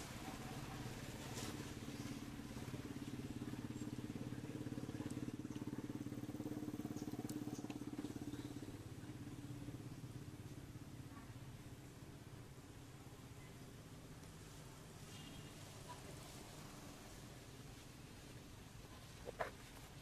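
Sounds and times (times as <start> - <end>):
small engine running: 0.2 - 11.0.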